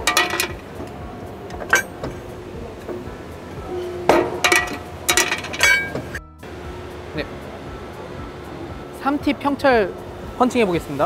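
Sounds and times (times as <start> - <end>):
metallic clanks of punch: 4.1 - 6.2.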